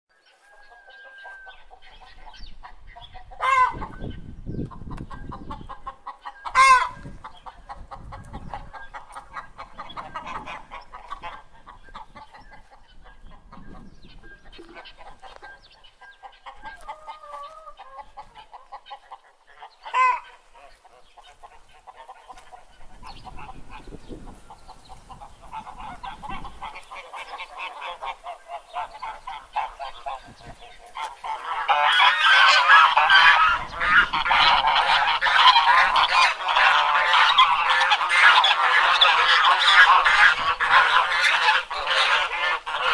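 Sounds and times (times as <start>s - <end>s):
chickens clucking: 0.2s - 42.9s
geese honking: 0.4s - 42.9s.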